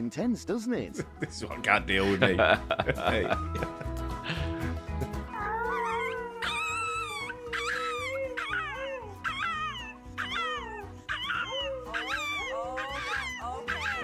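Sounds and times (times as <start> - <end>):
background music: 0.0 - 14.0
small dog howling: 5.4 - 14.0.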